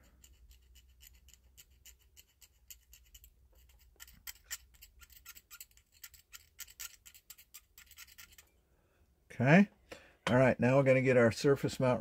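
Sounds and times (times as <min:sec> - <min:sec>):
blade scraping metal: 0:00.0 - 0:08.6.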